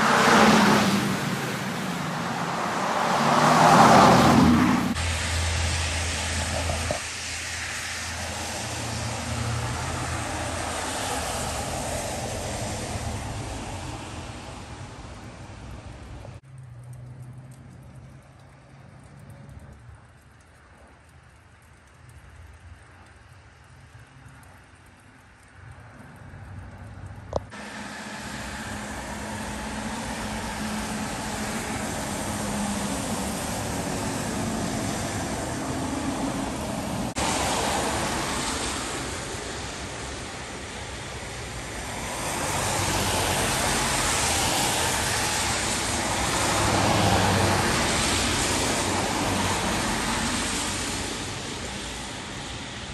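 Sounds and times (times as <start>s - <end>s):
tyres hissing on wet road: 0.0s - 20.0s, 20.6s - 52.9s
falling rain: 0.0s - 52.9s.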